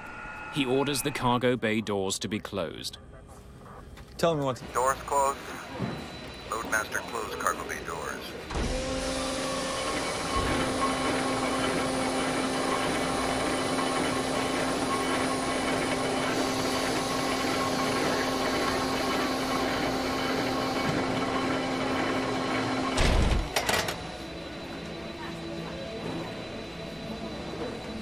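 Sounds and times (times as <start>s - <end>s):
motor whine: 8.5s - 28.0s.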